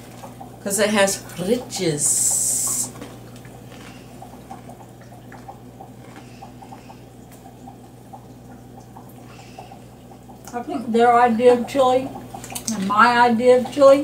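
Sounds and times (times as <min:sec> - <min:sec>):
steady low hum: 0:00.0 - 0:14.0
chewing potato chips: 0:02.9 - 0:07.6.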